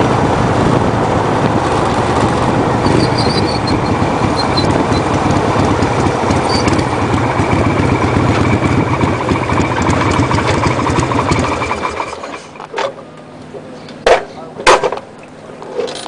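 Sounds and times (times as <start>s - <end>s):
wind on microphone: 0.0s - 9.9s
vehicle engine running: 0.0s - 13.8s.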